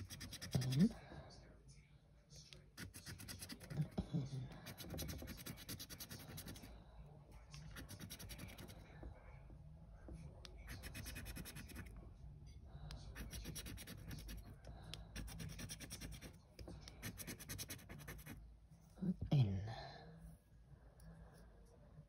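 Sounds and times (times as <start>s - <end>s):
scraper scraping scratchcard: 10.7s - 11.9s.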